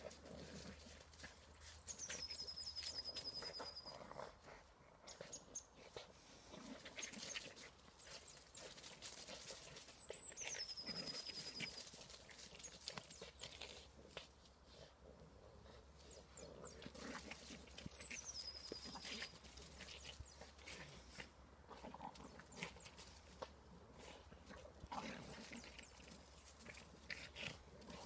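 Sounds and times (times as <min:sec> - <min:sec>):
songbird trill: 0:01.3 - 0:04.3, 0:09.8 - 0:13.6, 0:16.2 - 0:20.6
dogs growling: 0:12.4 - 0:28.0.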